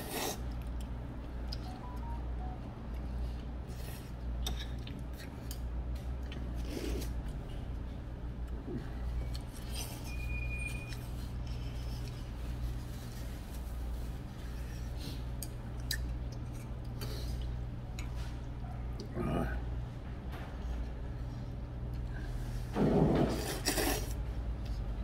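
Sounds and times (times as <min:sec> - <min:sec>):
room hum: 0:00.0 - 0:25.0
high steady tone: 0:01.6 - 0:02.8.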